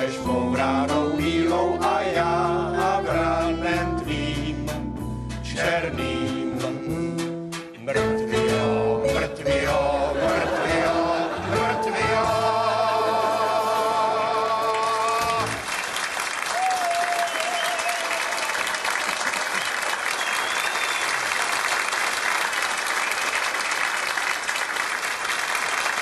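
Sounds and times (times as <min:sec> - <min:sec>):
audience clapping: 0:14.5 - 0:26.0.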